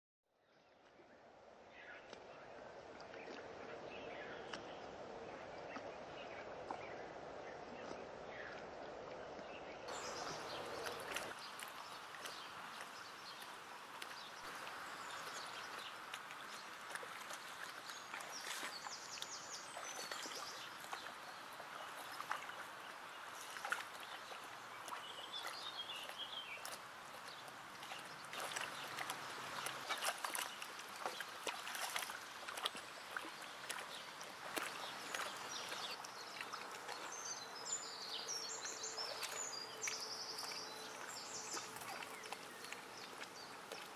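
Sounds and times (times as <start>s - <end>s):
horse slurping water: 7.7s - 43.9s
birds chirping: 9.4s - 43.9s.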